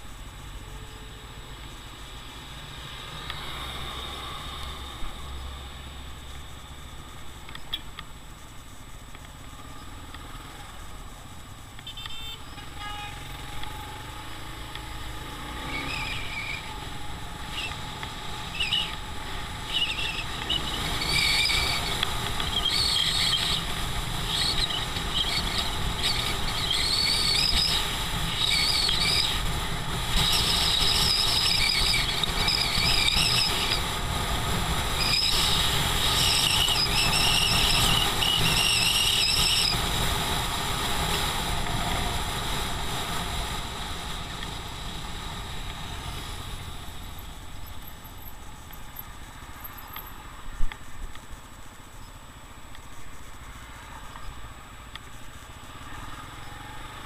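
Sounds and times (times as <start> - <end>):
high-pitched squeals: 15.5 - 34.0, 34.9 - 39.9.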